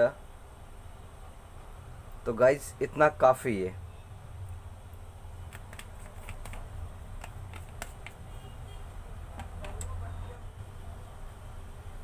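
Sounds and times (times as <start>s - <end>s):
plastic bottle clicking: 5.5s - 6.6s, 7.2s - 8.2s, 9.3s - 9.9s.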